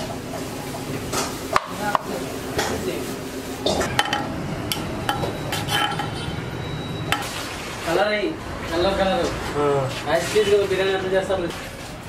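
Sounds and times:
metal ladle clinking on pot: 3.7 - 6.3.

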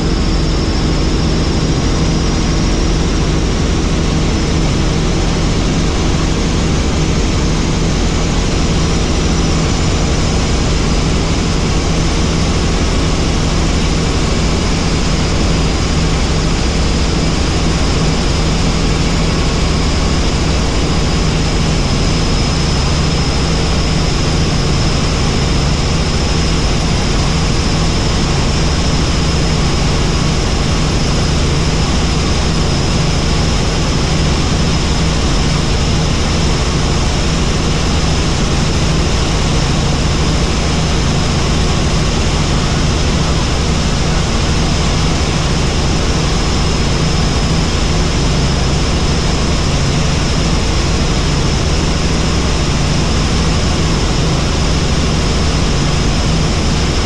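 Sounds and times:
helicopter rotor and engine: 0.0 - 57.0.

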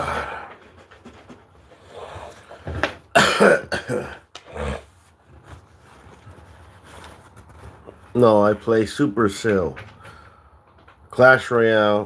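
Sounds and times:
man coughing: 3.1 - 4.3
throat clearing: 3.1 - 4.8.

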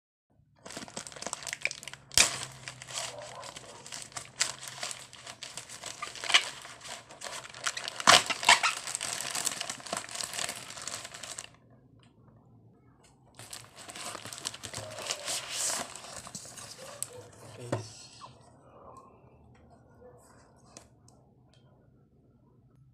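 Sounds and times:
plastic bag crinkling: 0.6 - 11.6, 13.4 - 17.2.

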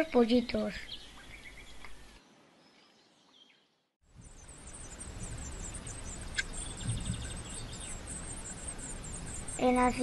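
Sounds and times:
nestlings begging chirps: 4.1 - 10.0
low thump: 6.8 - 7.4.

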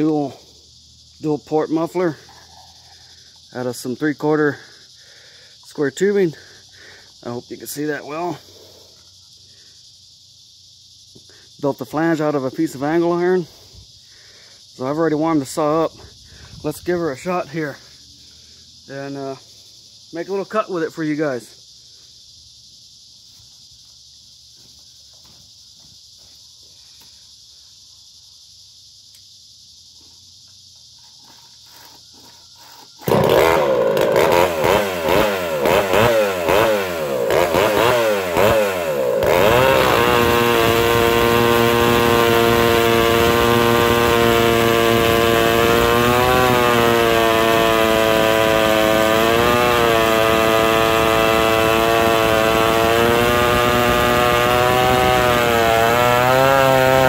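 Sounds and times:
chainsaw revving and cutting log: 31.2 - 57.0.

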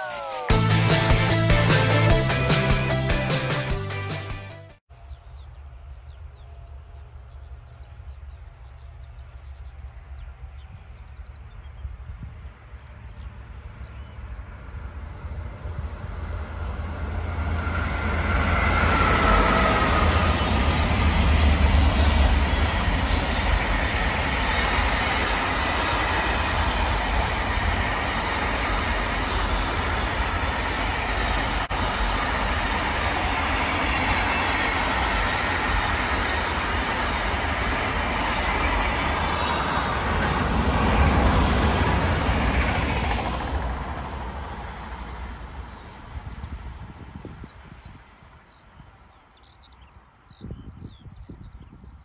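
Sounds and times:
electric locomotive whine: 12.5 - 48.4.

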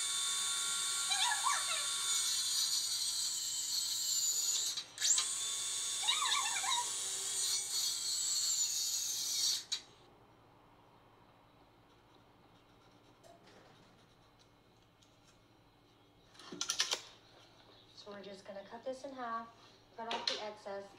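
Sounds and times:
circular saw cutting wood: 0.0 - 9.9.

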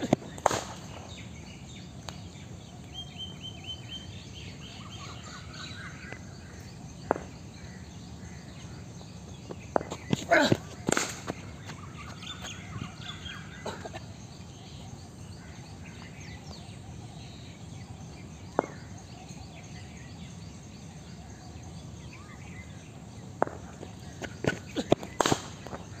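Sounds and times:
faint bird chirps: 0.0 - 23.0
ball hitting concrete: 7.0 - 7.4, 9.7 - 11.4, 18.6 - 18.8, 23.4 - 25.9
cricket ball cracking on bat: 7.0 - 7.4, 9.7 - 11.4, 18.5 - 18.9, 23.4 - 25.9.

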